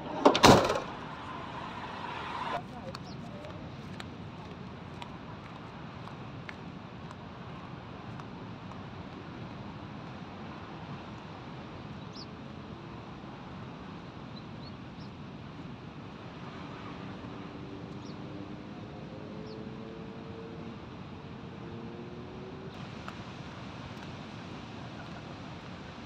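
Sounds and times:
breaking surf: 0.0 - 2.9
wind: 0.0 - 26.0.

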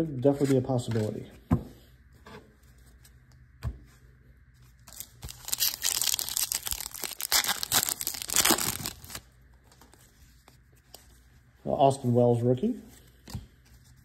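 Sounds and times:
foil wrapper tearing and crinkling: 4.9 - 9.3.

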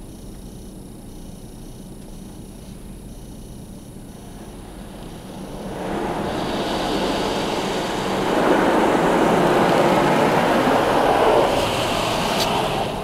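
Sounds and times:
car wash brushes scrubbing: 4.2 - 13.0
water spray pounding on car: 4.3 - 13.0.

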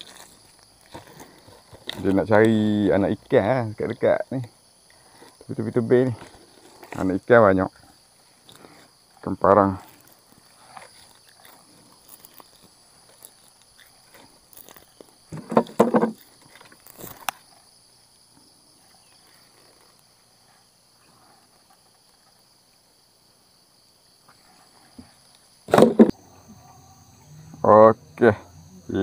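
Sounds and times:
insects buzzing: 0.0 - 29.0.

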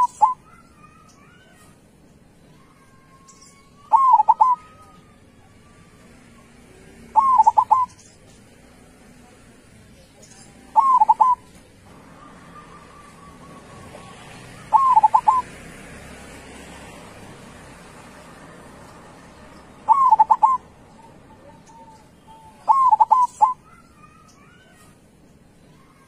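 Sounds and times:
dove cooing: 0.0 - 0.6, 3.9 - 4.9, 7.0 - 8.1, 10.7 - 15.5, 19.7 - 24.8.

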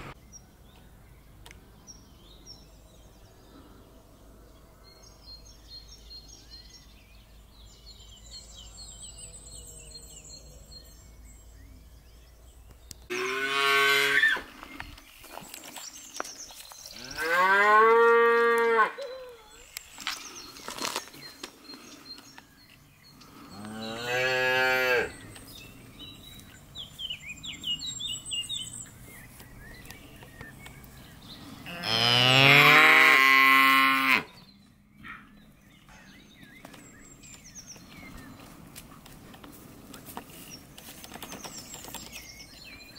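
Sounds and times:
calves mooing: 23.6 - 25.1, 31.7 - 34.3.

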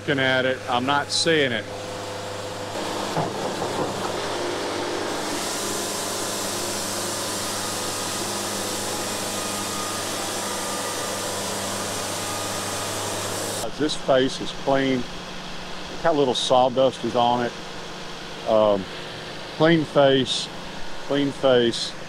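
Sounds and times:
sawmill motor humming: 0.0 - 22.0
saw blade hissing through wood: 4.5 - 13.7.

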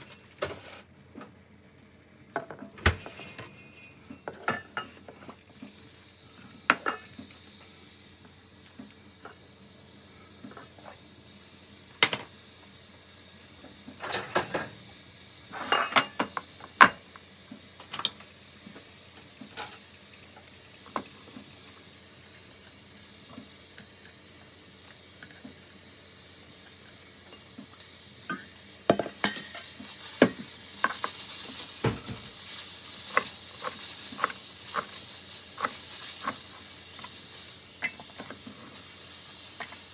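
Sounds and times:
steady high hiss: 0.0 - 39.9
clinks of steel bowl and kitchenware: 3.2 - 5.0, 15.6 - 16.3, 28.3 - 29.7.

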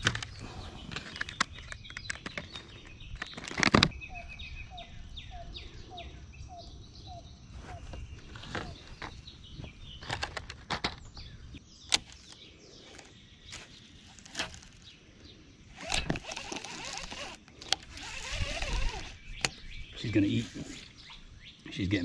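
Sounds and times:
birds chirping faintly: 0.0 - 22.0
fishing reel and tackle clicks: 15.8 - 19.6.

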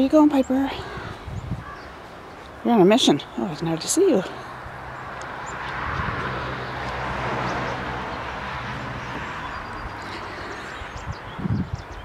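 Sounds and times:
low engine hum: 4.3 - 12.0
rushing noise of passing vehicle: 4.3 - 12.0.

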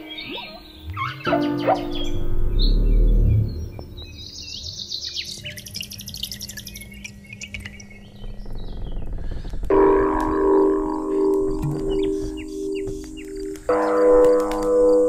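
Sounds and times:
high bird-like chirps: 0.0 - 9.0
low rumble: 2.0 - 4.2
fast chittering trill: 5.2 - 7.7.

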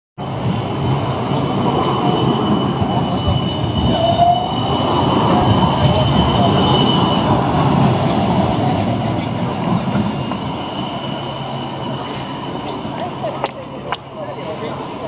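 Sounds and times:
tram wheels rumbling on rails: 0.2 - 15.0
wheel squeal: 1.0 - 7.5, 9.7 - 13.2.

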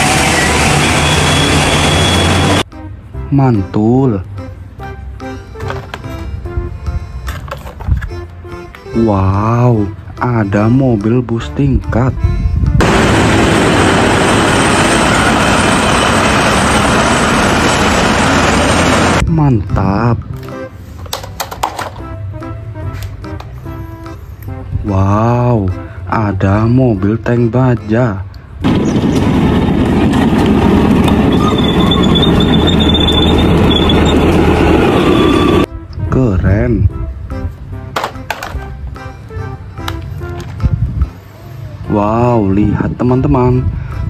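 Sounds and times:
high squeal from tracks: 0.0 - 2.6, 12.8 - 19.2, 28.7 - 35.7
tank engine and tracks clattering: 0.0 - 2.6, 12.8 - 19.2, 28.6 - 35.7
bus driving past: 0.0 - 3.1, 12.8 - 19.2, 28.4 - 35.7
street traffic: 0.0 - 19.3, 20.0 - 36.1, 36.9 - 44.0.

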